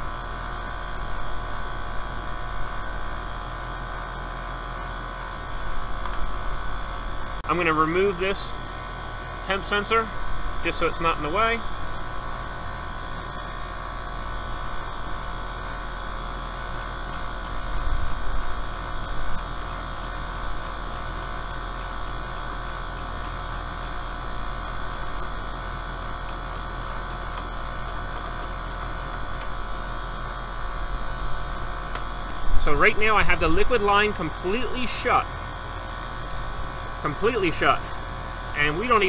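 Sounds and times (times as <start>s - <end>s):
condenser unit humming: 0.0s - 39.0s
ratcheting wrench clicking: 15.9s - 29.5s.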